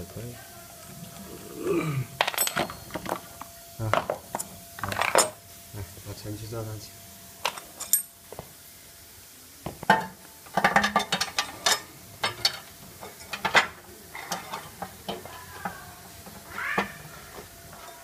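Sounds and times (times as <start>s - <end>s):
metal parts clattering on plastic: 2.2s - 3.3s, 4.8s - 5.4s, 10.6s - 15.8s.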